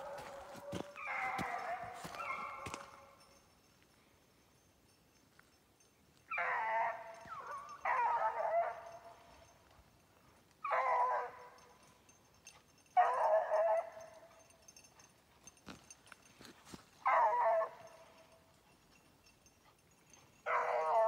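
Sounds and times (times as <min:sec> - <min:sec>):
dog barking and howling: 0:00.0 - 0:03.2, 0:06.3 - 0:09.5, 0:10.6 - 0:11.9, 0:13.0 - 0:14.5, 0:17.0 - 0:18.3, 0:20.2 - 0:21.0.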